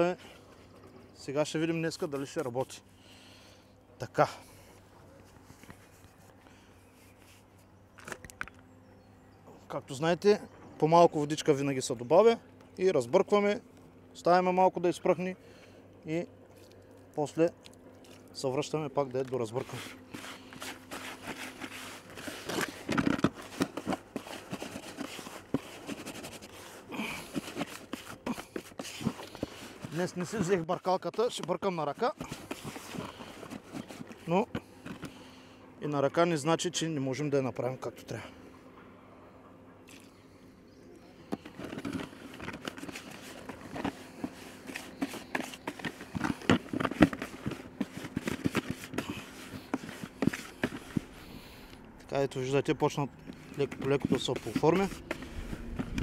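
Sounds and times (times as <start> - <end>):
hand mixing groundbait in bucket: 16.5 - 35.6, 41.2 - 56.0.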